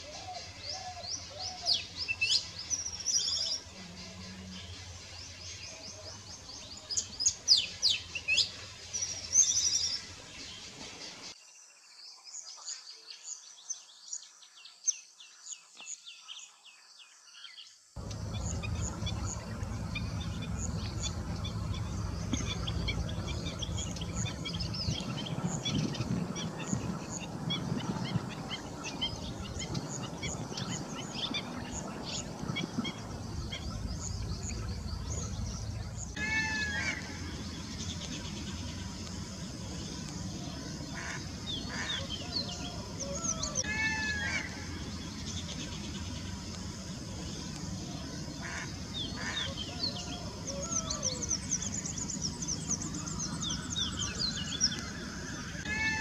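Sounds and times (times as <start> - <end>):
chatter of many small birds: 0.0 - 11.4, 12.0 - 56.0
low rumble: 18.0 - 41.4.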